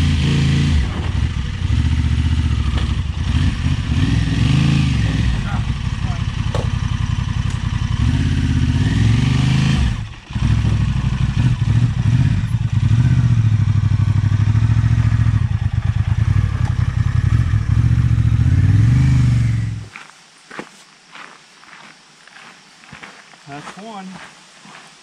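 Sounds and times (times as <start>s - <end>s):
motorcycle engine at low revs: 0.0s - 19.9s.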